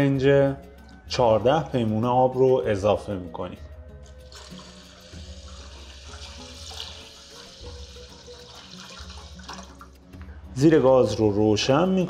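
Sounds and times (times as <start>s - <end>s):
water pouring into a pot: 4.0s - 10.1s.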